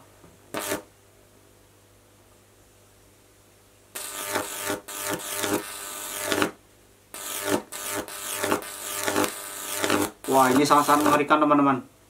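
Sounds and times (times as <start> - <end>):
electric arc buzzing: 0.5 - 0.9, 3.9 - 11.8.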